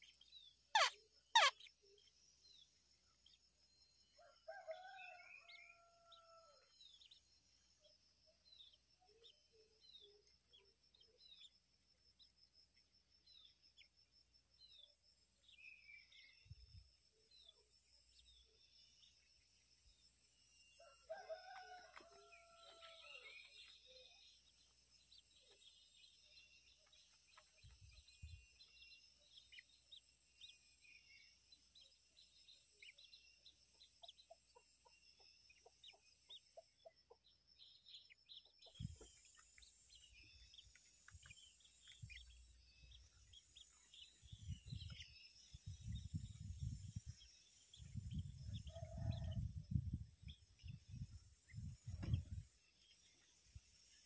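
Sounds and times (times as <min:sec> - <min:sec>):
bird chirps: 0:00.0 - 0:03.4.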